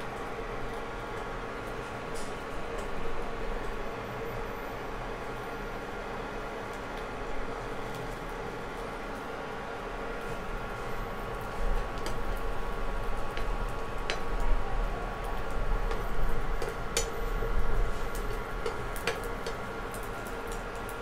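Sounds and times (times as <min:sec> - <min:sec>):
egg frying in butter: 0:04.8 - 0:21.0.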